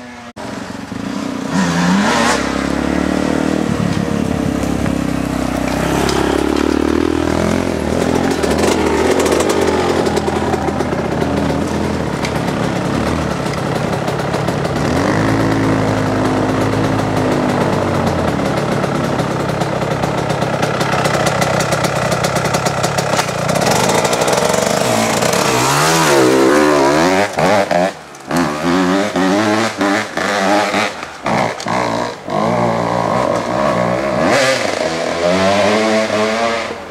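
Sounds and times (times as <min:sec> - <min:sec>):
dirt bike engine revving: 0:00.0 - 0:36.9.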